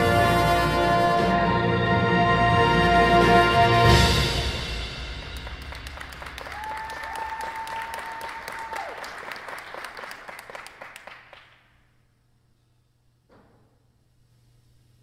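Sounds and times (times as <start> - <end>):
audience applauding: 5.2 - 11.7.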